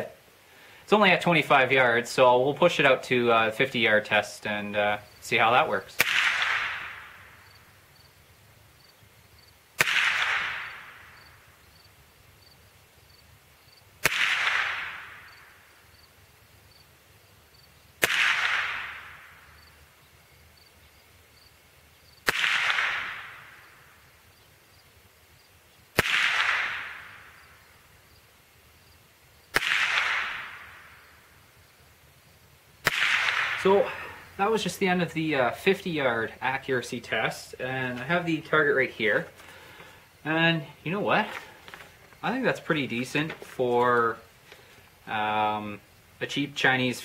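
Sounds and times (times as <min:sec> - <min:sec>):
rifle shots with ringing echo: 0:06.0 - 0:07.6, 0:09.8 - 0:11.5, 0:14.0 - 0:15.7, 0:18.0 - 0:19.8, 0:22.2 - 0:24.0, 0:25.9 - 0:27.7, 0:29.5 - 0:31.4, 0:32.8 - 0:34.6.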